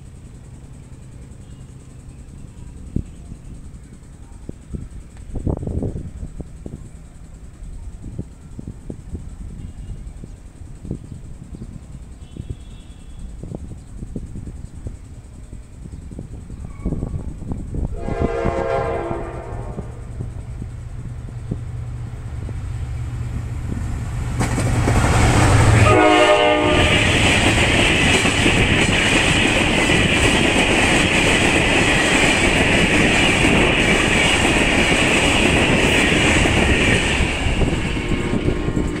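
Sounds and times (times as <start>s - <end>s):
train rumble: 0.0s - 39.0s
train horn blast: 12.2s - 13.3s, 17.9s - 20.2s, 25.2s - 27.4s, 37.6s - 39.0s
wheels clattering on rails: 19.1s - 39.0s.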